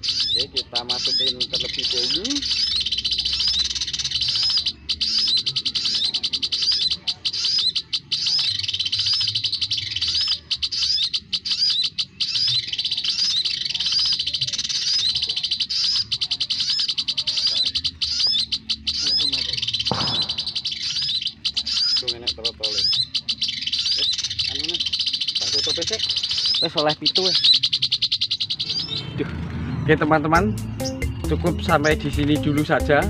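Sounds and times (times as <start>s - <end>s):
birds chirping rapidly: 0.0s - 33.0s
short thump: 19.9s - 20.5s.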